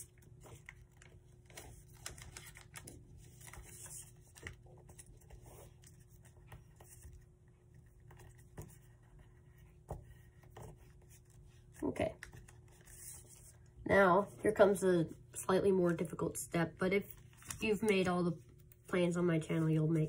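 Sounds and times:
paper rustling and crinkling: 0.0 - 7.3, 17.1 - 18.8
low steady hum: 0.0 - 20.0
soft taps and scrapes: 7.9 - 13.7.

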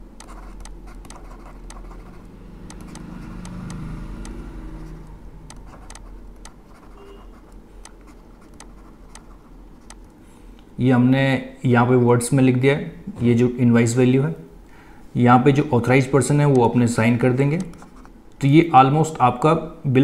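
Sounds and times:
stylus ticking and scratching: 0.0 - 10.2, 17.4 - 18.2
low steady hum: 0.0 - 20.0.

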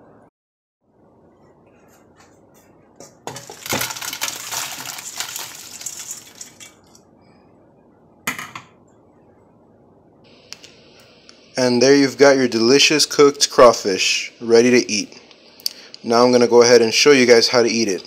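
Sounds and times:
shells clattering into metal pan: 3.3 - 6.9.

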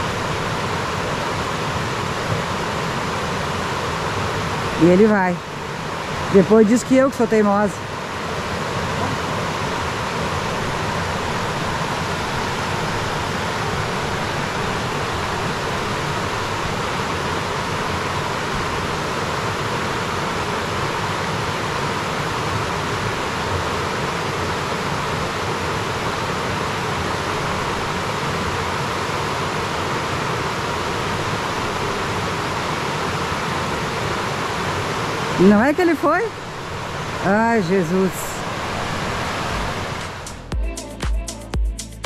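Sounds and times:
waterfall rushing: 0.0 - 40.5.

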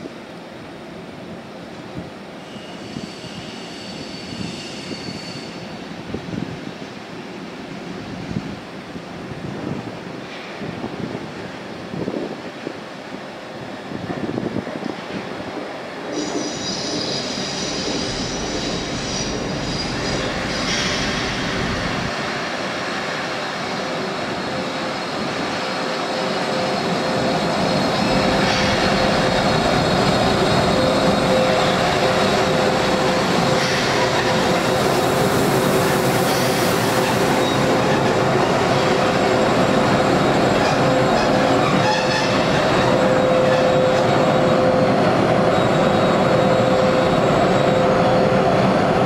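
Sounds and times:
locomotive whining tone: 26.5 - 49.0.

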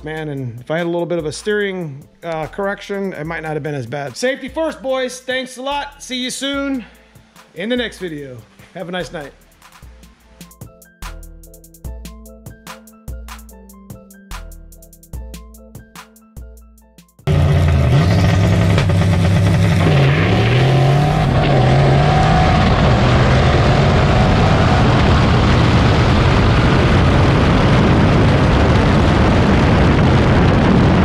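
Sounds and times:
car engine revving hard: 17.3 - 28.9
road noise: 17.3 - 31.0
wind rush: 19.9 - 31.0.

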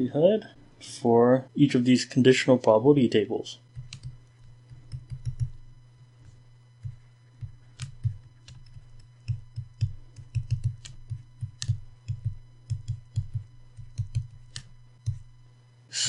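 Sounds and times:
stylus tapping on drawing tablet: 3.8 - 5.6, 6.8 - 15.2.

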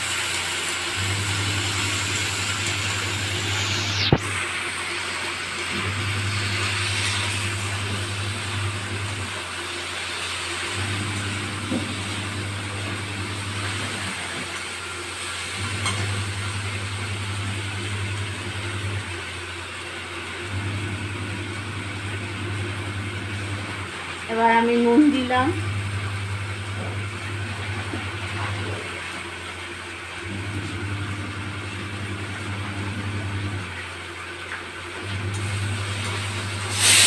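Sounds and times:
okra sizzling in a wok: 0.0 - 20.5, 35.3 - 37.0.

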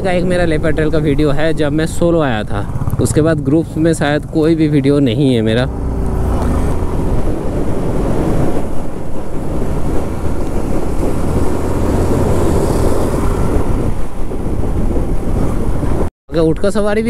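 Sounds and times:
wind rushing over microphone: 0.0 - 16.1
motorcycle engine running: 2.2 - 14.0.

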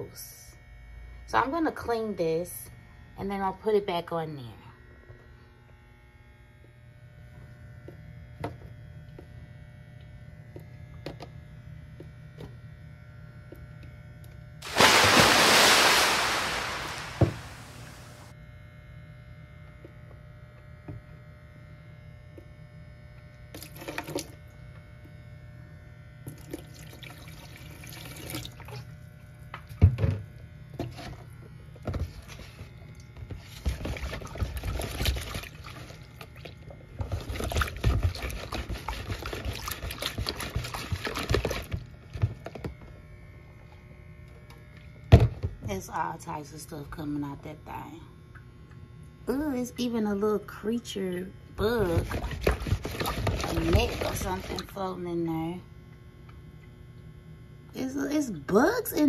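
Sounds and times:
water rushing into steel sink: 14.6 - 18.3
water splashing and trickling: 14.6 - 18.3.

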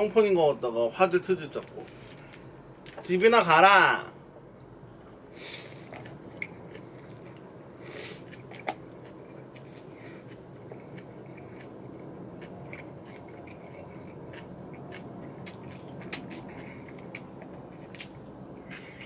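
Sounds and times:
person chewing: 5.4 - 19.0
wet mouth clicks: 12.4 - 19.0.

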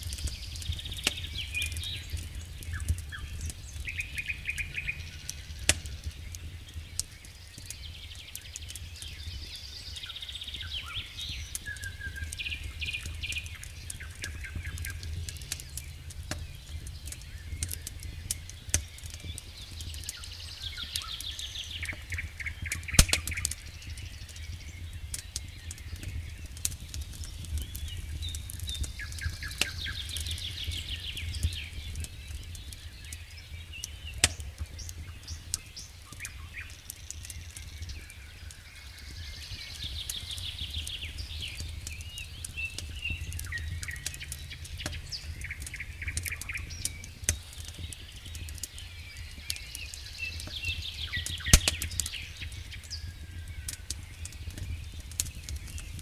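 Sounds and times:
campfire crackling and popping: 0.0 - 56.0
songbirds trilling: 0.0 - 56.0
low steady rumble: 0.2 - 7.0, 11.9 - 20.5, 38.6 - 49.0.

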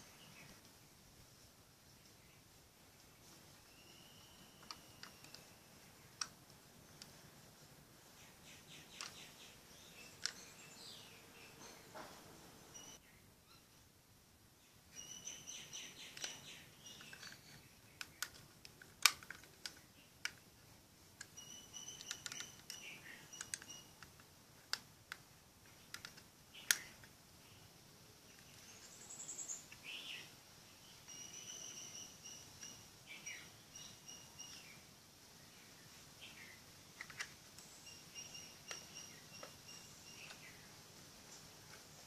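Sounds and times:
faint high chirps and trills: 1.4 - 13.9, 14.6 - 18.2, 19.8 - 24.2, 25.6 - 42.0
plastic clicks and snaps: 4.6 - 7.2, 8.6 - 9.4, 10.0 - 10.5, 16.0 - 20.5, 21.1 - 27.2, 37.0 - 37.7.

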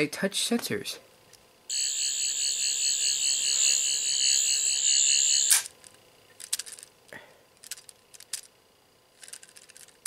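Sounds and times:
warbling electronic whirr: 1.7 - 5.7.

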